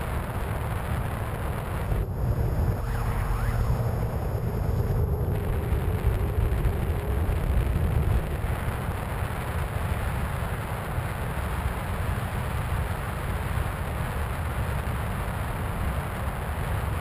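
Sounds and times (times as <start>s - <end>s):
wind buffeting camera: 0.0s - 11.8s
electric motor and propeller drone: 1.4s - 8.0s.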